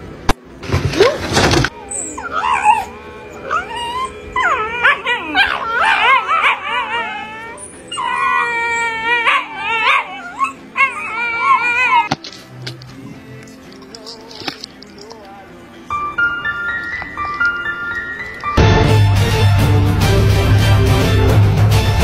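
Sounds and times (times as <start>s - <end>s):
dogs howling and yipping: 1.7s - 12.1s.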